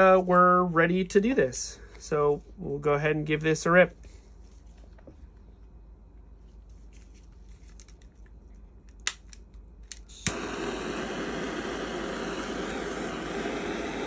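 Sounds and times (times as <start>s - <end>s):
torch lighter click: 9.0s - 14.0s
torch flame hissing: 9.9s - 14.0s.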